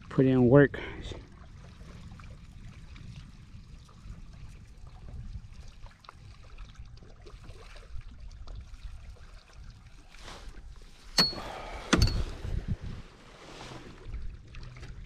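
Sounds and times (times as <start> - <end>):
small waves lapping against hull: 0.0 - 15.0.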